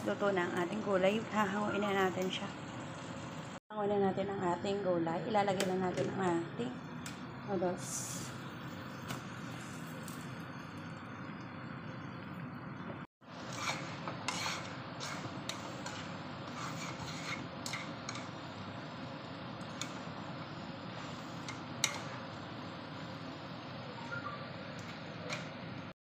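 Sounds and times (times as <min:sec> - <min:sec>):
chopsticks stirring noodles in pan: 0:13.4 - 0:18.6.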